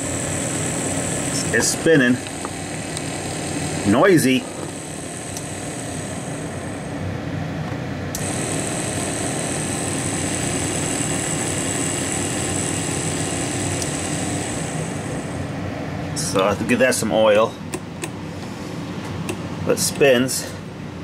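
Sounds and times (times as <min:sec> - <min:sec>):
tape player motor whirring: 0:00.0 - 0:07.0, 0:08.2 - 0:15.5.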